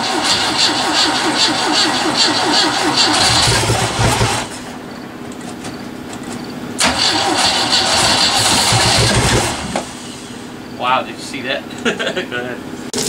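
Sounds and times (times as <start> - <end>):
boat engine cranking on starter: 0.0 - 4.7, 6.8 - 10.0
deep engine rumble: 0.5 - 11.8.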